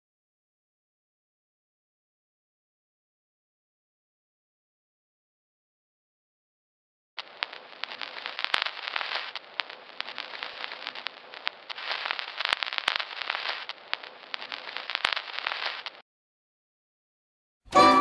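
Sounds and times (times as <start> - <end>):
clicks and pops: 7.2 - 16.0
faint steady hum: 7.2 - 16.0
film crackle hiss: 7.2 - 16.0.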